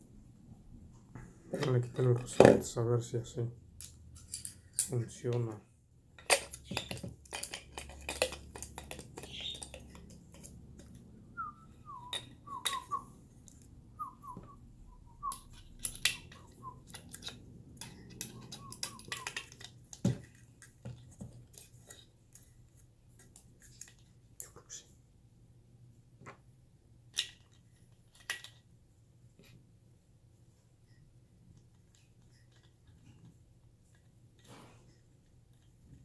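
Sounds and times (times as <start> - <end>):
faint squeaky chirps: 9.2 - 10.0, 17.9 - 19.4.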